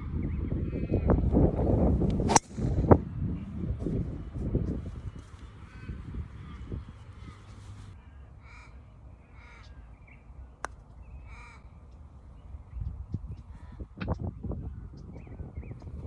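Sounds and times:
crow cawing: 8.4s - 9.8s, 11.2s - 11.7s.

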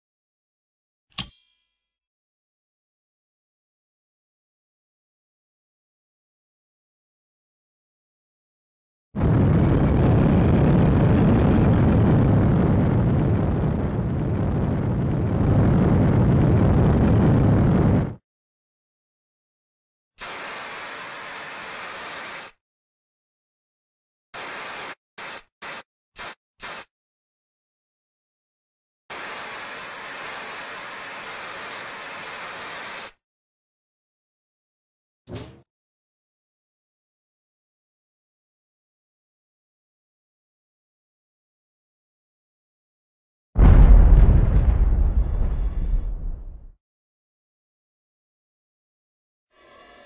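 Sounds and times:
rocket motor low rumble: 9.2s - 18.2s, 43.6s - 46.8s.

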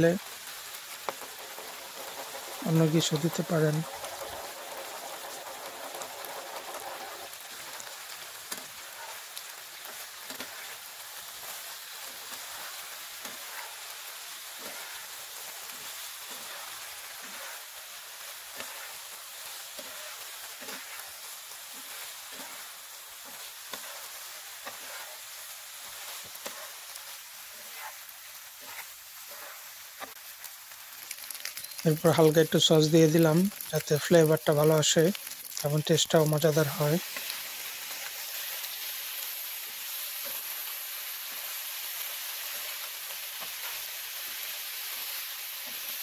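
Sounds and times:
pasta and egg sizzling in a pan: 0.0s - 46.0s
spatula scraping a pan: 0.5s - 30.2s.

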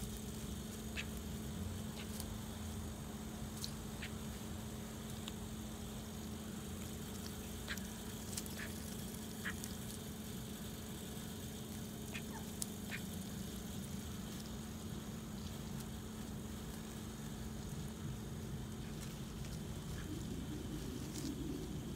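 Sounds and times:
steady low hum: 0.0s - 21.9s
ducks quacking softly: 9.4s - 9.6s, 12.0s - 13.2s.

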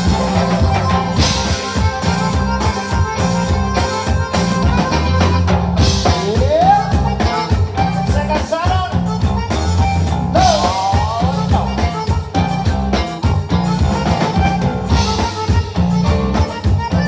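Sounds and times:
bass: 0.0s - 17.0s
button accordion: 0.0s - 17.0s
drum kit beat: 0.0s - 17.0s
guitar: 0.0s - 17.0s
person singing: 6.0s - 12.5s.

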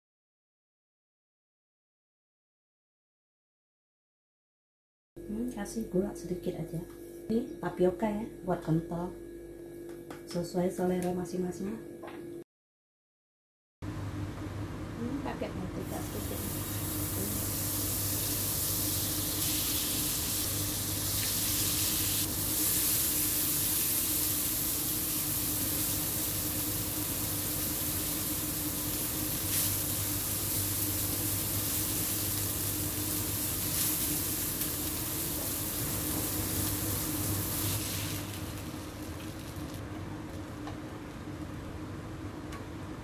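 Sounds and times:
vegetables sizzling in butter: 15.8s - 39.9s.

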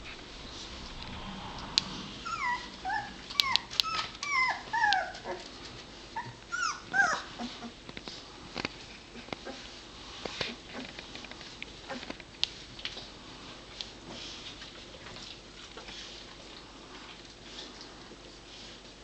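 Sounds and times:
newborn puppies squealing: 2.2s - 5.4s, 6.2s - 7.7s.

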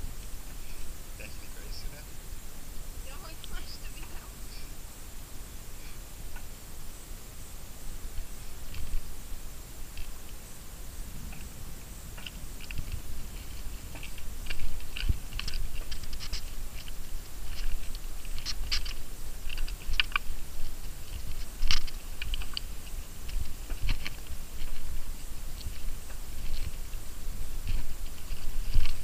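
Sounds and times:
footsteps crunching on stony trail: 11.2s - 29.0s.

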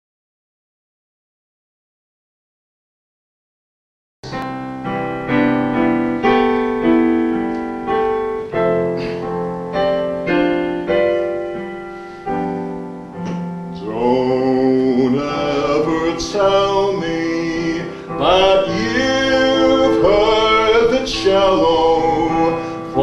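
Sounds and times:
piano chords ringing: 4.2s - 23.0s
man singing: 13.7s - 23.0s.

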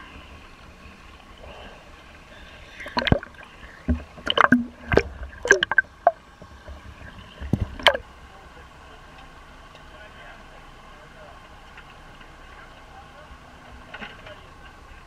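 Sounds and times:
faint steady hum: 0.0s - 15.0s
water pouring and splashing: 2.7s - 8.0s
sharp sloshes and knocks: 2.8s - 8.0s.

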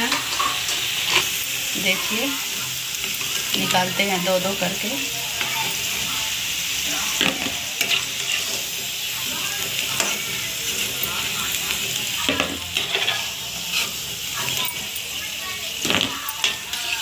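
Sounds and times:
metal spatula scraping pan: 0.0s - 2.2s, 7.1s - 8.7s, 9.6s - 17.0s
food deep-frying sizzle: 0.0s - 17.0s.

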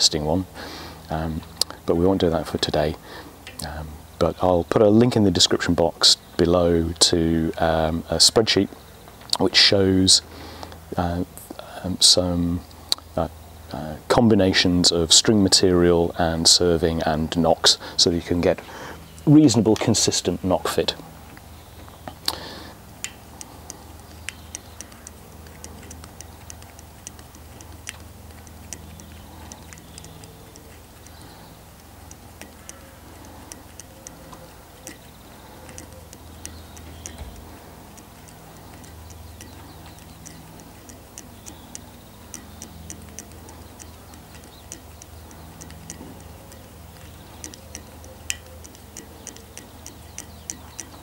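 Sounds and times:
faint low hum: 0.0s - 51.0s
serving tool clicking: 22.1s - 51.0s.

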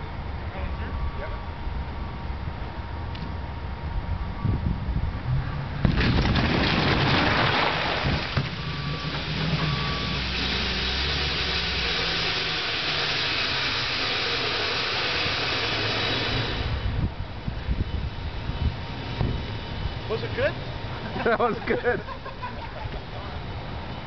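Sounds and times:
truck engine: 0.0s - 24.0s
truck crashing through door: 5.8s - 10.7s
steady hiss: 10.0s - 17.0s.

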